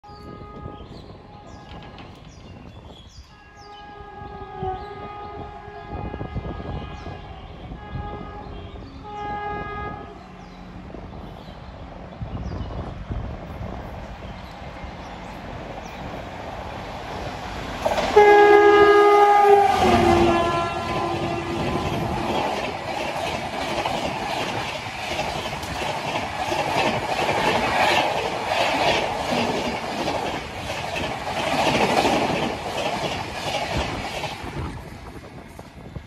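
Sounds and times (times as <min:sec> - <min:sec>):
locomotive horn: 0:00.1 - 0:01.9, 0:03.4 - 0:10.2, 0:18.1 - 0:22.6
train coaches rushing by: 0:00.1 - 0:36.0
wheels clacking over rail joints: 0:14.6 - 0:35.2.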